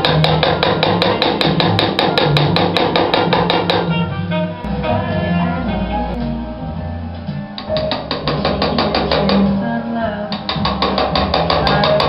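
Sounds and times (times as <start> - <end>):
hammer tapping chisel on steel: 0.0 - 3.9, 7.6 - 9.6, 10.3 - 12.0
background music: 0.0 - 12.0.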